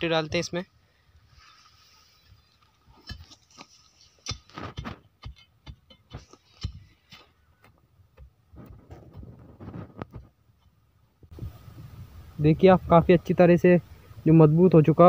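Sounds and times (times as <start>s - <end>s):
crowbar tamping soil and stones: 2.5s - 10.8s.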